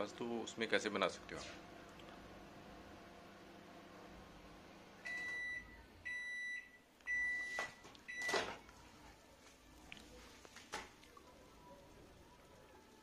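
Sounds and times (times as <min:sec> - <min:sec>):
microwave oven beeping: 0:04.9 - 0:08.6.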